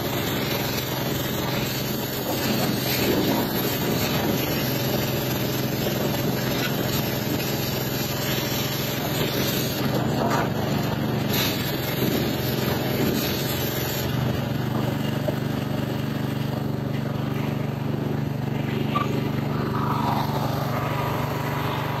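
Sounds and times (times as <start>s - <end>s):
water spray hissing on steel: 0.0s - 14.4s
pressure washer drone: 0.0s - 22.0s.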